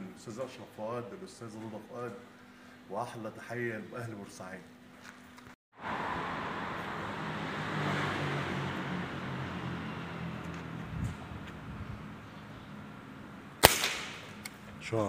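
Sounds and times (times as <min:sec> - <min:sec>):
vehicle engine passing: 0:05.8 - 0:13.6.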